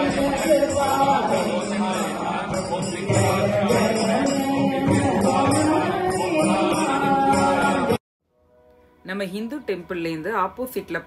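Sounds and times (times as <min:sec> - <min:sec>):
jingling percussion beat: 0:00.0 - 0:08.0
chanted devotional song: 0:00.0 - 0:11.0.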